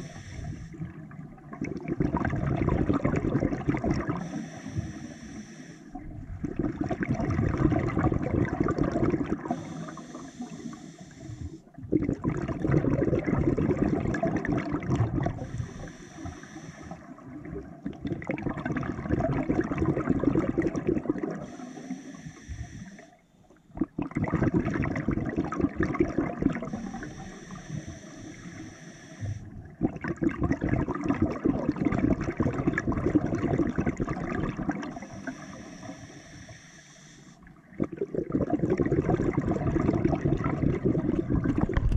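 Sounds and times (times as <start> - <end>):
hissing regulator inhale: 0.0 - 0.8, 4.0 - 6.0, 9.4 - 11.8, 15.3 - 17.2, 21.4 - 23.3, 26.7 - 29.6, 34.8 - 37.6
gurgle of exhaust bubbles: 0.7 - 4.3, 6.0 - 9.6, 11.8 - 15.8, 17.1 - 21.5, 23.7 - 27.1, 29.5 - 35.4, 37.6 - 41.9.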